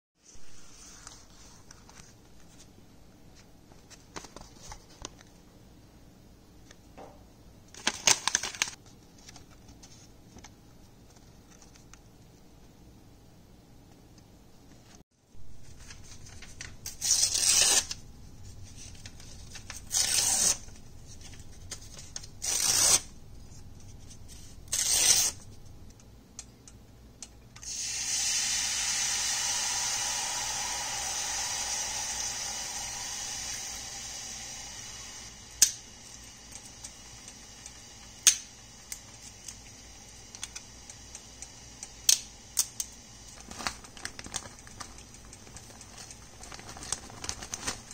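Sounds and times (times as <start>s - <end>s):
paper tearing: 16.8s - 18.0s, 19.7s - 20.7s, 22.4s - 23.1s, 24.7s - 25.4s.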